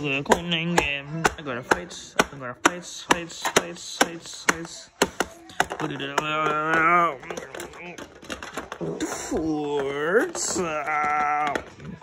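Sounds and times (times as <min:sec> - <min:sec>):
sharp evenly spaced taps: 0:00.0 - 0:08.7
voice: 0:00.0 - 0:12.0.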